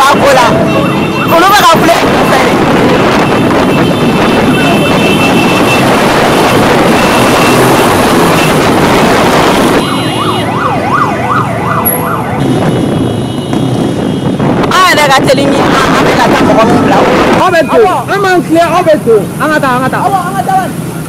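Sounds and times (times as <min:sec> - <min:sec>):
siren wailing: 0:00.0 - 0:12.5
dense traffic engine noise: 0:00.0 - 0:21.0.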